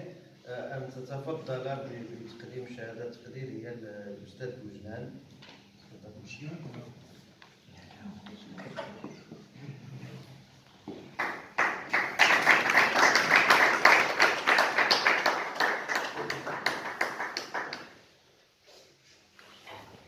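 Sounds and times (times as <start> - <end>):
audience applauding: 11.1 - 18.0.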